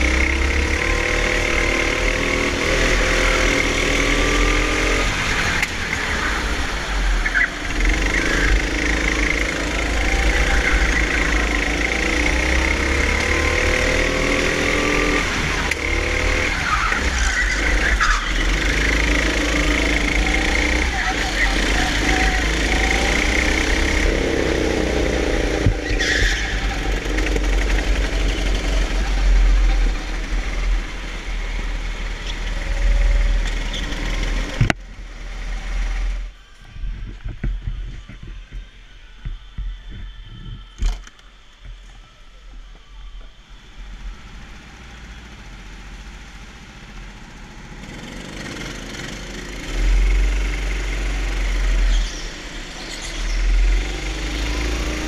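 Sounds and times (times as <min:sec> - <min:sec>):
kart engine running hard: 0:00.0 - 0:36.4, 0:43.7 - 0:55.0.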